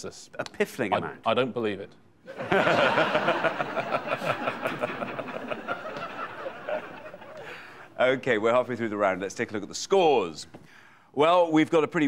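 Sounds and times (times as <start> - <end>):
studio audience laughing: 2.3 - 7.8.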